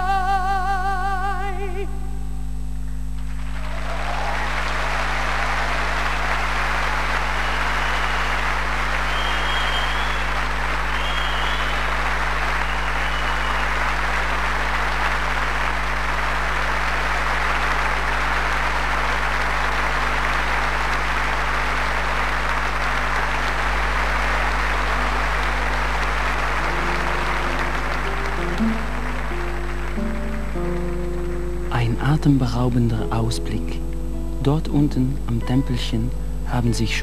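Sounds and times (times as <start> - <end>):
low electrical hum: 0.0 - 37.0
audience applauding: 3.2 - 33.6
music notes: 24.5 - 37.0.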